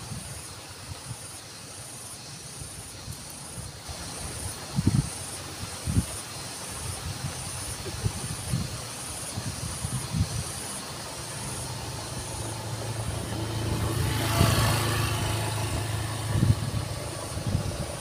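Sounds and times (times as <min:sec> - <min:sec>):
small motorcycle engine: 0:11.1 - 0:18.0.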